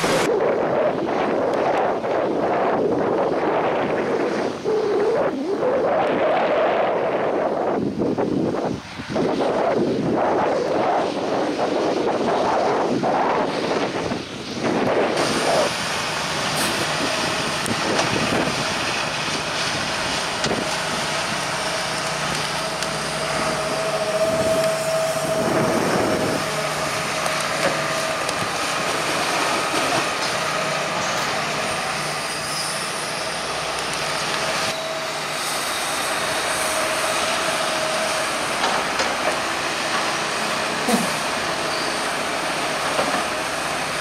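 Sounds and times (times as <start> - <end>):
heavy diesel machinery running: 0.0 - 0.3, 11.0 - 44.0
steady machine whine: 9.2 - 44.0.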